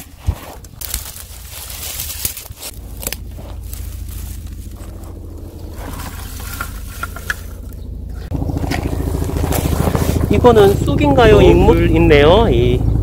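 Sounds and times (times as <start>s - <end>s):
twigs and grass rustling: 0.0s - 12.0s
helicopter rotor throb: 2.7s - 13.0s.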